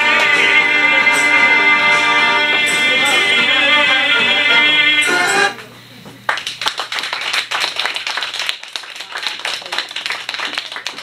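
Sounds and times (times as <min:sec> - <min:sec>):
song ending: 0:00.0 - 0:05.6
audience clapping: 0:06.2 - 0:11.0.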